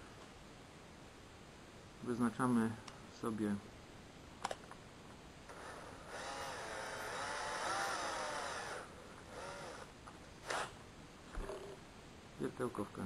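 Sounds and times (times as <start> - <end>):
cordless drill motor running: 5.5 - 10.7.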